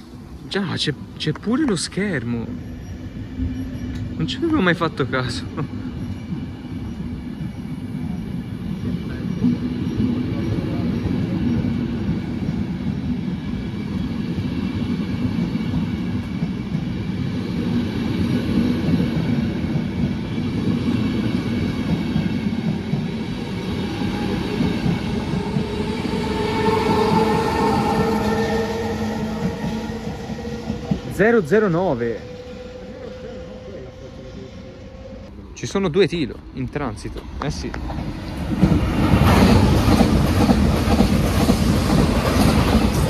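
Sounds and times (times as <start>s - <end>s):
train wheels rumbling on track: 0.0s - 43.0s.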